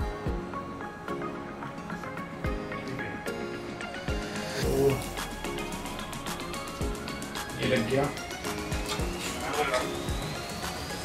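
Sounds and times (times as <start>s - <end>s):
music with held tones: 0.0s - 11.0s
deep beat: 4.1s - 10.8s.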